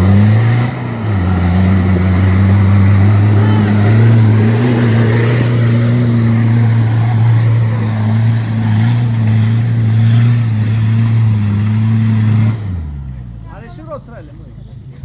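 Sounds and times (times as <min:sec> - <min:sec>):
truck engine at high revs: 0:00.0 - 0:13.4.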